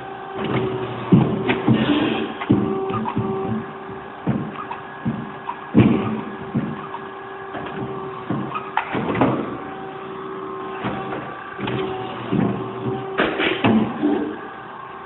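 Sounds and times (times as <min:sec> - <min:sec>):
machinery hum: 0:00.0 - 0:15.0
metal clanks and knocks: 0:00.4 - 0:09.8, 0:10.7 - 0:14.5.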